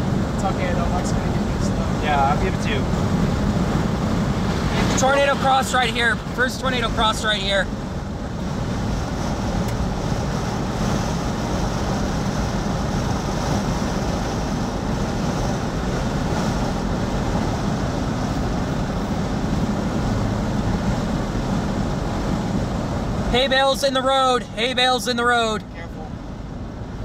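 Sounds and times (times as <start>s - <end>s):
tyre and engine rumble: 0.0s - 27.0s.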